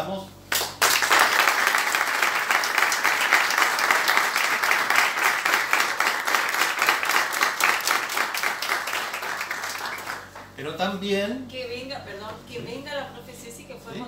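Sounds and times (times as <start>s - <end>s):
people applauding: 0.5s - 10.6s.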